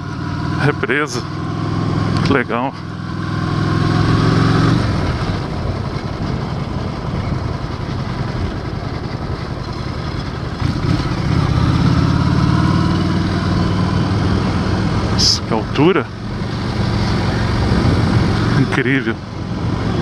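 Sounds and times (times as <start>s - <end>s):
motorcycle engine running: 0.0s - 20.0s
wind noise: 4.7s - 11.4s, 16.3s - 18.7s
tyres on rough cobblestones: 5.0s - 11.9s.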